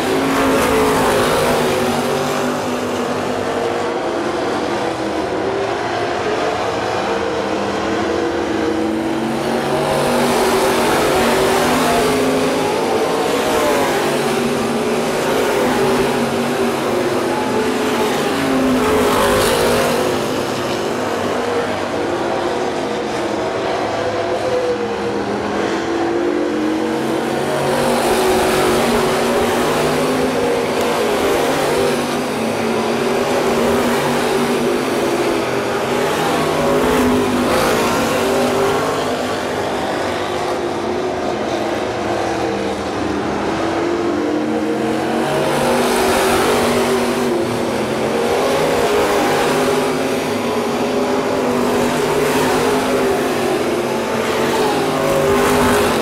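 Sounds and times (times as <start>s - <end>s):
race car engines: 0.0s - 56.0s.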